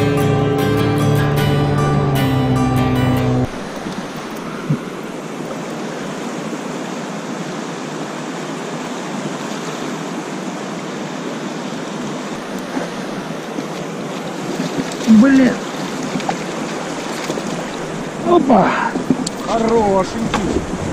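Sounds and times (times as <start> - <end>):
fast river water rushing: 0.0 - 20.9
wind on microphone: 15.9 - 20.9.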